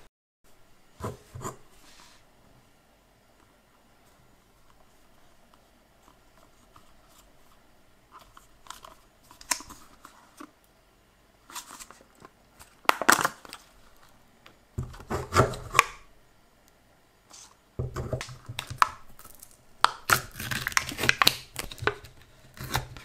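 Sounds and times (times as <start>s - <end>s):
plastic lid clicking and crackling: 8.3s - 9.9s, 17.8s - 23.0s.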